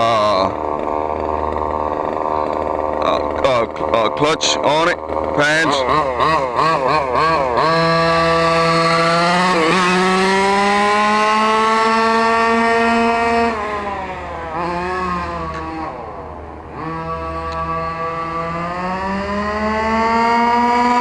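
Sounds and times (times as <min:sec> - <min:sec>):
small two-stroke engine revving: 0:00.0 - 0:21.0.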